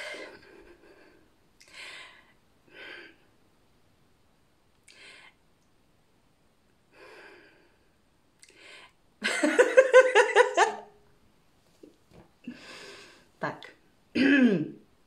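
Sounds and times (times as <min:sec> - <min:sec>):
short breaths: 0:04.9 - 0:05.4
woman laughing: 0:09.2 - 0:10.9.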